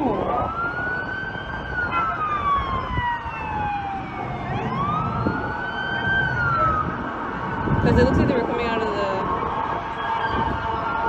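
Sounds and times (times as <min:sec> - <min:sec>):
low rumble of street traffic: 0:00.0 - 0:11.0
police siren wailing: 0:00.0 - 0:11.0.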